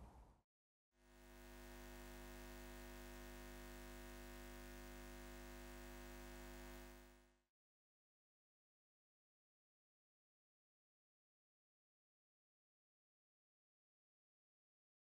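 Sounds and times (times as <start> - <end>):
faint steady hum: 1.0 - 7.4.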